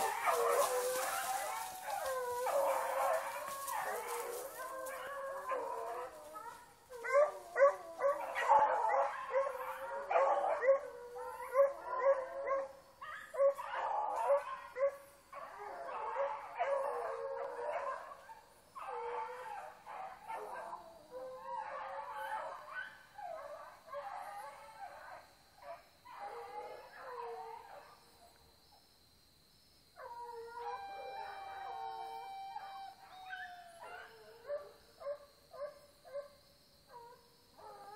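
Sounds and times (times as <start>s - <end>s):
hounds barking: 0.0s - 20.8s, 32.7s - 36.4s
hounds baying and howling: 0.0s - 28.2s, 30.0s - 37.9s.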